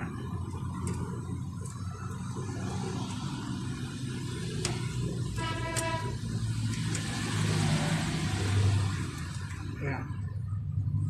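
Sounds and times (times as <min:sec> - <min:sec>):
vehicle engine rumble: 0:00.0 - 0:11.0
horn toot: 0:05.4 - 0:06.2.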